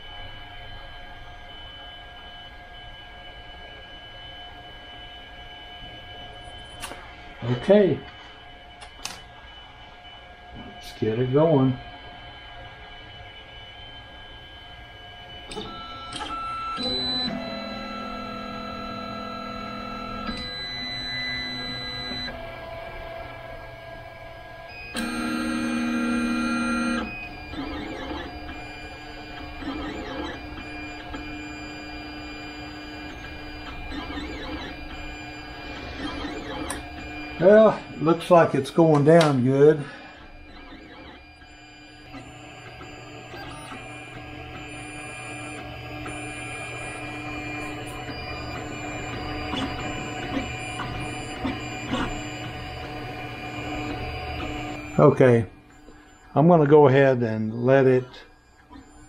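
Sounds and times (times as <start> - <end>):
loud steady tone: 9.5 - 22.4, 34.7 - 40.1, 41.4 - 58.6
stepper motors whining: 13.2 - 39.4, 40.0 - 56.3.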